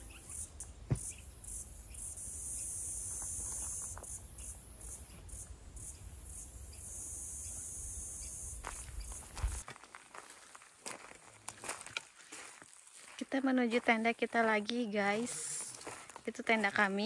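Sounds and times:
insects buzzing: 0.0s - 9.6s.

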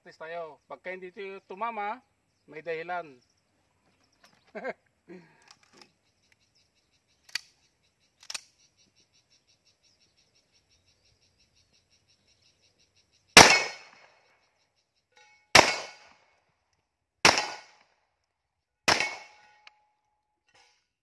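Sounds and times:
pistol shots with echo: 13.4s - 14.1s, 15.5s - 16.2s, 17.2s - 17.8s, 18.9s - 19.5s.

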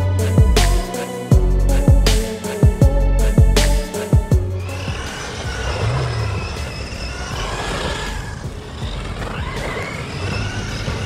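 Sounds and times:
electric motor whining: 1.4s - 11.0s
tyres scrabbling on loose dirt: 4.8s - 11.0s.

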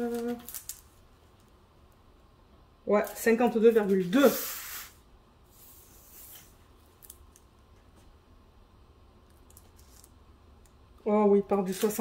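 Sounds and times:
plastic cover rustling: 11.6s - 12.0s.

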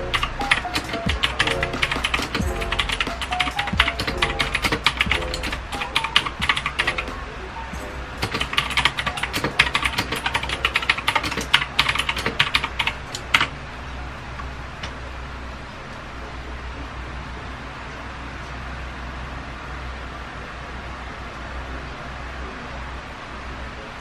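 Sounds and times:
clicky mechanical keyboard typing: 0.1s - 7.1s, 8.2s - 13.5s.

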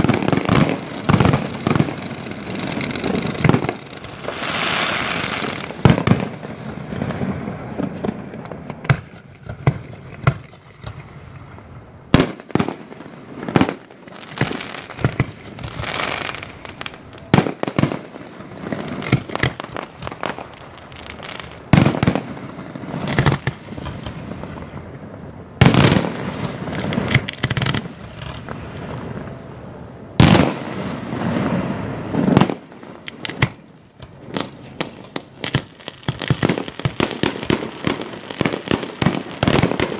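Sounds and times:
firework shells banging: 0.0s - 20.5s, 32.3s - 39.9s
firework crackling: 0.0s - 39.9s.

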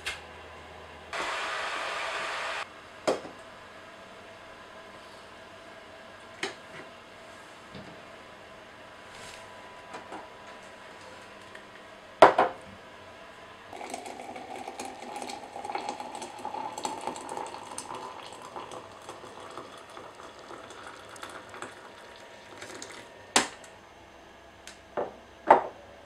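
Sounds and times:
water pouring into glass: 13.7s - 23.1s.

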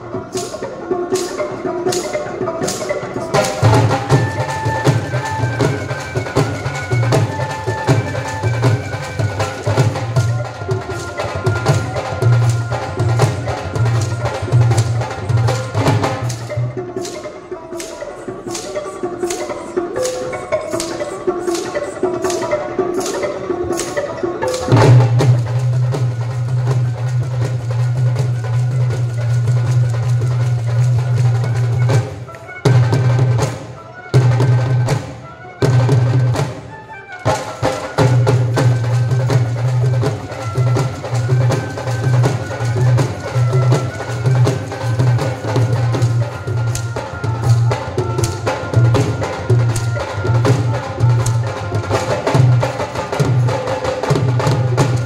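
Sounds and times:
flute melody: 0.0s - 55.0s
hand drums beating: 0.0s - 55.0s.

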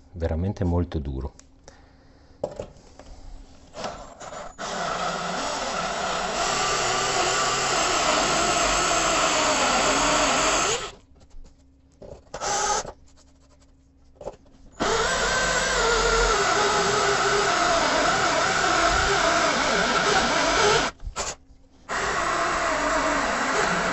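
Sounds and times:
cordless drill cutting sink: 3.8s - 11.0s, 12.4s - 12.9s, 14.8s - 23.9s.

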